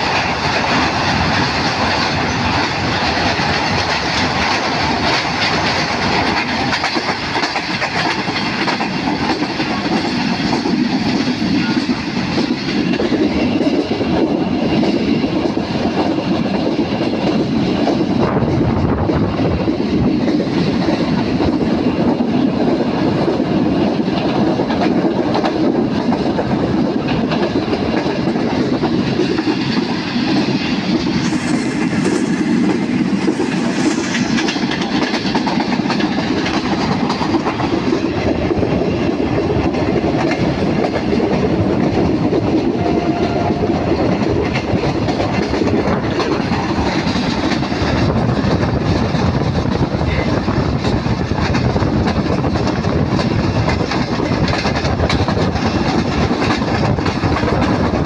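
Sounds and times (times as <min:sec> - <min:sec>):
train wheels running on rails: 0:00.0 - 0:58.0.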